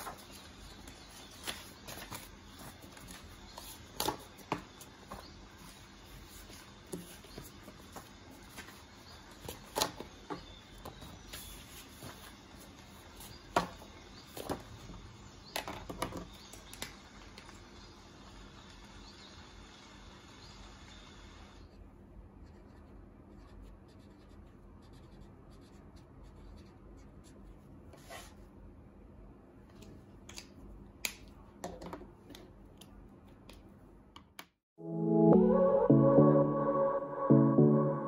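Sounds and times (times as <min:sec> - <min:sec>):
paper rustling and tapping: 0:00.0 - 0:05.3.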